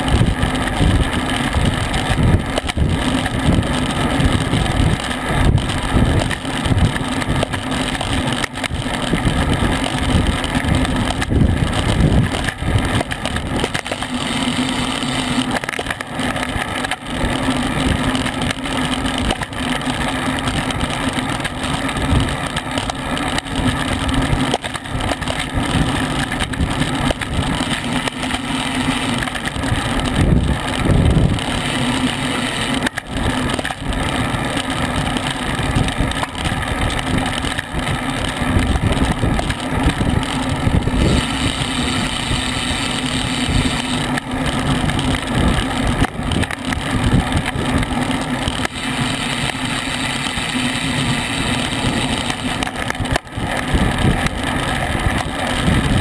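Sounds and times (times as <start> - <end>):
wind buffeting microphone: 0.0 - 15.2, 20.4 - 56.0
steady low hum: 0.0 - 56.0.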